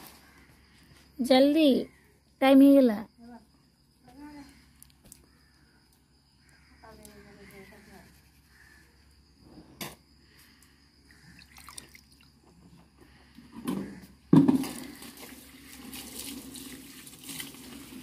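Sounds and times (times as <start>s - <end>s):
water dripping and splashing: 11.4s - 12.4s, 14.7s - 18.0s
tap water running: 14.8s - 18.0s.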